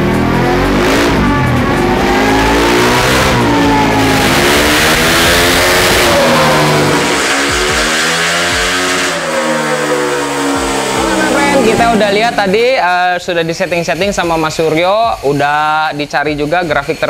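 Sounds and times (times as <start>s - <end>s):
motorcycle engine revving hard: 0.0s - 12.8s.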